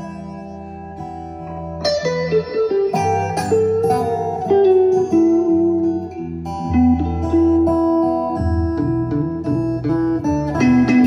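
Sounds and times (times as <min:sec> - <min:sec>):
plucked guitar notes: 0:00.0 - 0:11.0
bass line: 0:03.0 - 0:11.0.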